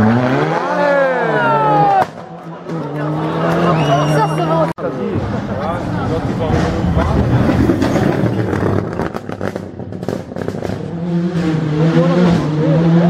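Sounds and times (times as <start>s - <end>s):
rally engine under hard throttle: 0.0s - 13.0s
exhaust crackles and pops: 7.0s - 10.8s.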